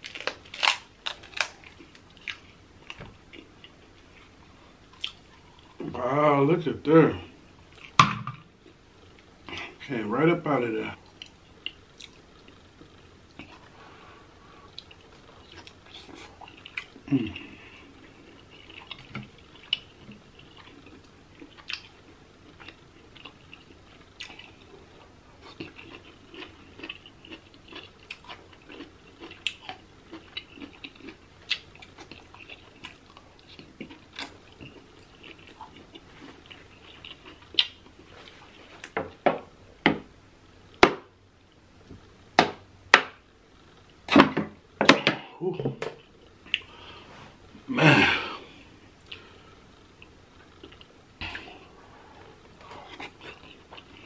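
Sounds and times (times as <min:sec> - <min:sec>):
wet chewing and smacking: 0:04.9 - 0:05.8, 0:18.0 - 0:39.0.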